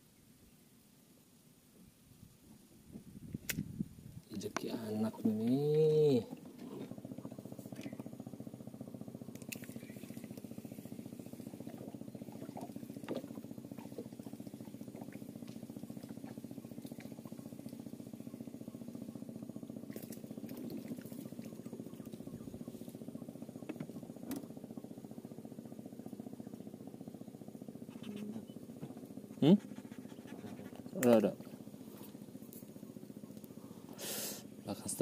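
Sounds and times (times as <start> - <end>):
pulsing mechanical drone: 4.4 - 35.0.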